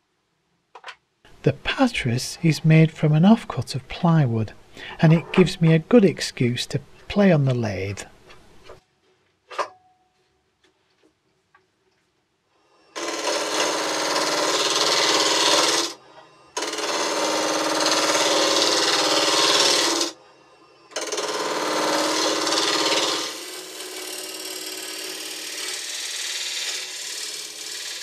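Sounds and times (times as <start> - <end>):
lathe motor hum: 21.0 - 28.0.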